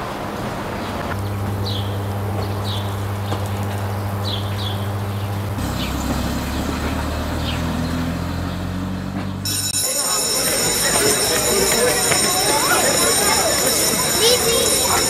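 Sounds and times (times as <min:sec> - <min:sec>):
low hum with higher overtone: 0:01.0 - 0:06.4.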